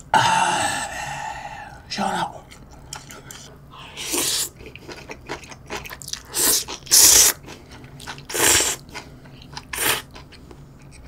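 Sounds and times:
soft chewing: 2.4 - 3.6, 4.4 - 11.0
person slurping noodles: 3.9 - 4.6, 6.3 - 7.4, 8.3 - 8.8, 9.6 - 10.1.

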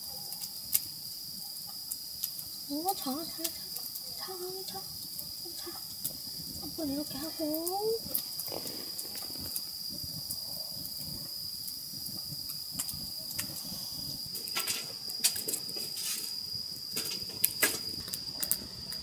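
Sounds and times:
crickets chirring: 0.0 - 19.0
soft rustling: 7.8 - 9.8.

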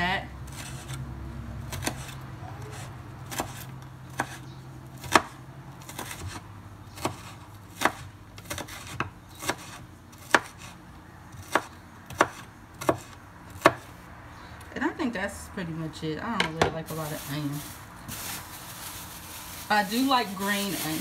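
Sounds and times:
knife chopping on wooden board: 5.0 - 6.4, 7.0 - 13.9.

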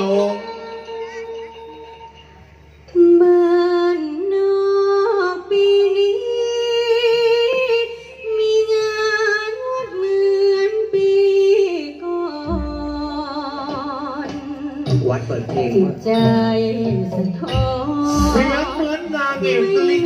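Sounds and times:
person singing long notes: 12.3 - 20.0.

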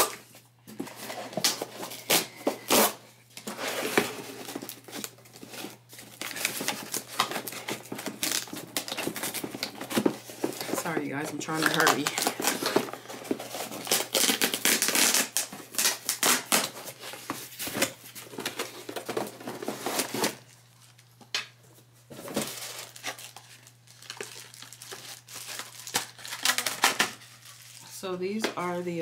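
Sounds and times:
paper and packaging crinkling: 0.0 - 28.9
cardboard box tearing: 11.6 - 17.1.

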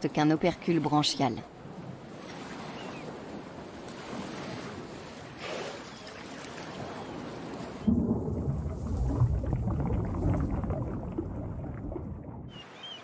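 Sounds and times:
low rumble: 7.9 - 12.5.

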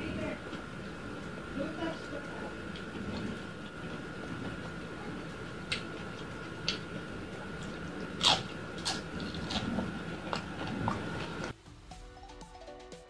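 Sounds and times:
person chewing crunchy food: 5.6 - 11.5.

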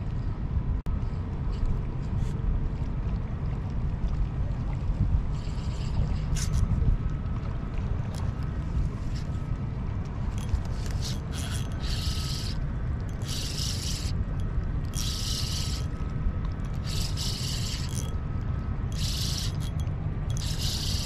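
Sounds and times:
wind rumble on microphone: 0.0 - 21.0
fishing reel whirring: 5.4 - 6.7, 10.3 - 18.2, 18.9 - 21.0.

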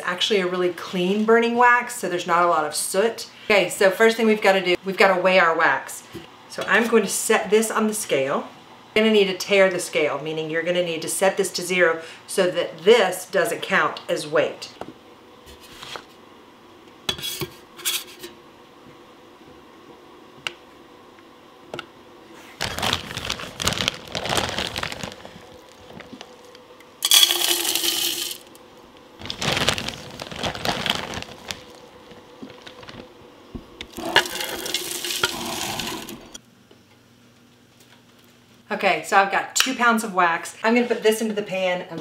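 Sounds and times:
wax flakes pouring into metal pitcher: 25.1 - 28.5, 33.9 - 36.4.

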